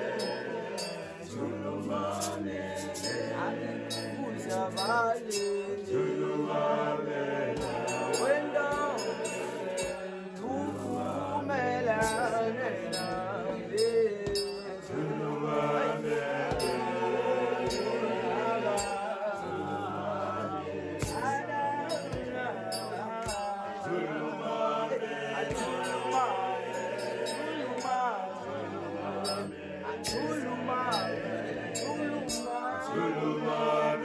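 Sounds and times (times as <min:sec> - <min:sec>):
song with sung vocals: 0:00.0 - 0:34.0.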